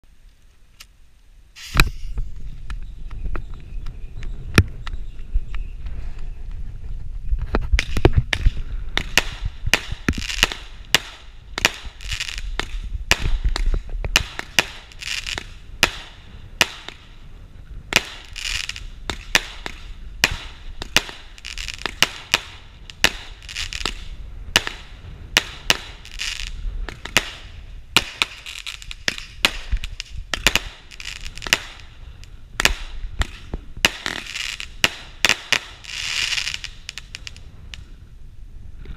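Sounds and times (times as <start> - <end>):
firework crackling bursts: 1.5 - 2.4, 7.7 - 38.0
firework shots: 1.6 - 2.2, 7.7 - 37.9.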